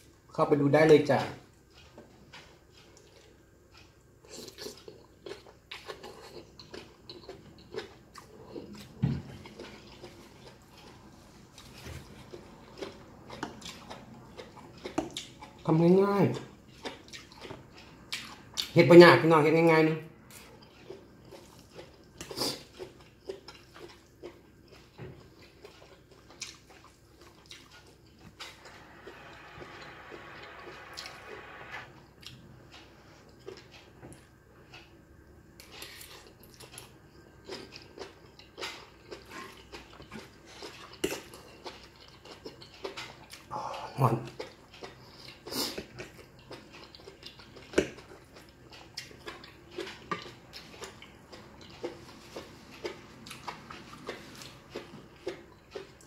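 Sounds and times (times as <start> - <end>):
chewing and mouth sounds: 1.2 - 18.8, 19.6 - 56.0.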